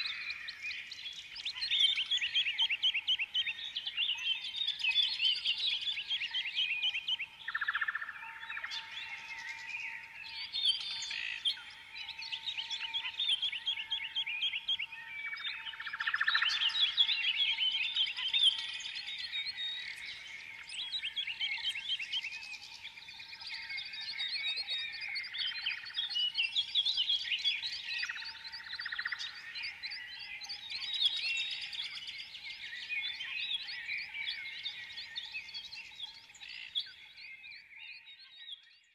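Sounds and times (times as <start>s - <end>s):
songbirds chirping and trilling: 0.0s - 38.9s.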